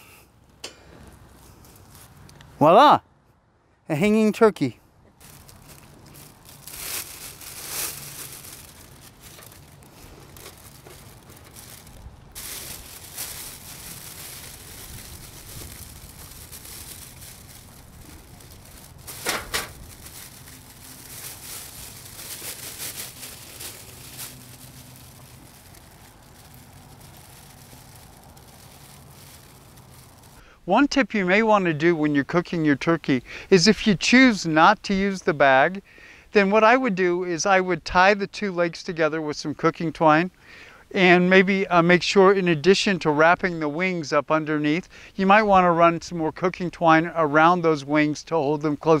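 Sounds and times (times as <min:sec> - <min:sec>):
plastic bag crinkling: 0:05.2 - 0:30.4.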